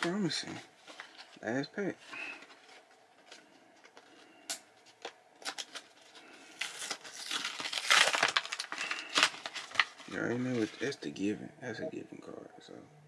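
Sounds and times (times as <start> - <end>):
foil wrapper tearing and crinkling: 4.5 - 10.9.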